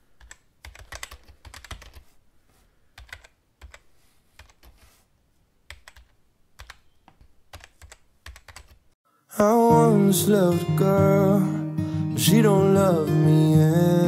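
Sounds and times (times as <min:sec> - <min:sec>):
computer keyboard typing: 0:00.2 - 0:02.1, 0:03.0 - 0:04.9, 0:05.7 - 0:08.8.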